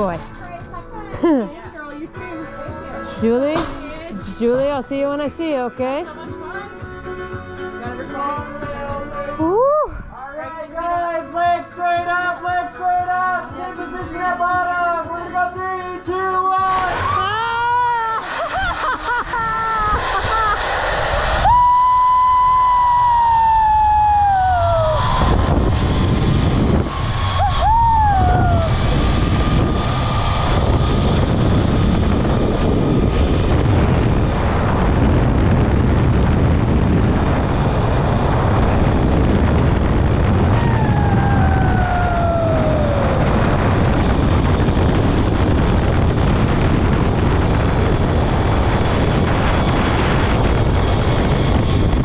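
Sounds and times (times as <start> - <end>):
zipline trolley on steel cable: 16.7 - 34.2
wind buffeting microphone: 18.5 - 52.0
whining tone falling in pitch: 19.4 - 46.2.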